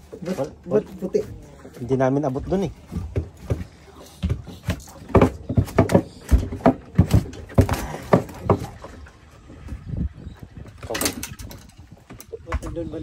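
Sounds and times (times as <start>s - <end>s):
fish thrashing on deck: 2.7s - 9.2s.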